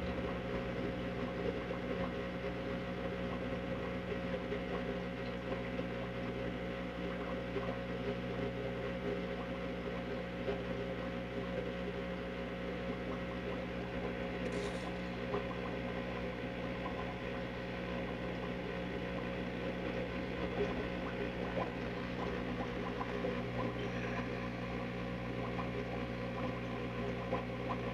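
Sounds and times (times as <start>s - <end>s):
steady tonal hum: 19.9s - 26.5s.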